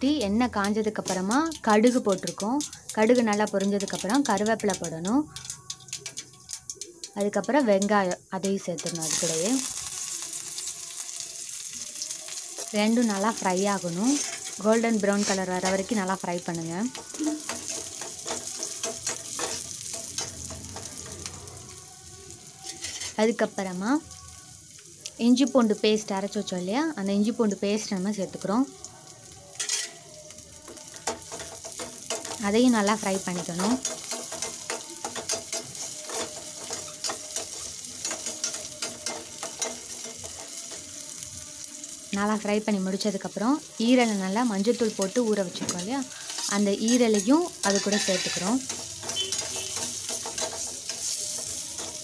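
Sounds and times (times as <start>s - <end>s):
onions sizzling in oil: 0.0s - 52.0s
spatula stirring and scraping pan: 13.3s - 16.1s, 16.9s - 21.7s, 22.6s - 23.3s, 29.6s - 30.1s, 31.0s - 40.9s, 44.9s - 52.0s
metal spatula scraping pan: 13.8s - 15.9s, 22.6s - 23.3s, 29.6s - 30.0s, 45.6s - 52.0s.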